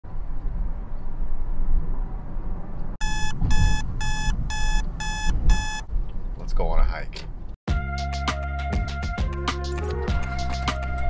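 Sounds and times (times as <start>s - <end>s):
digital alarm clock beeping: 3.0s - 5.9s.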